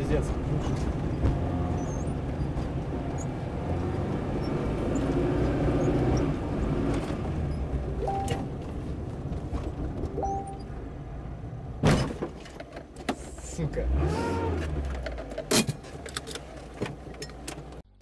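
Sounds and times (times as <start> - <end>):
car engine and road noise: 0.0 - 18.0
short tones: 8.0 - 8.6, 10.1 - 10.7.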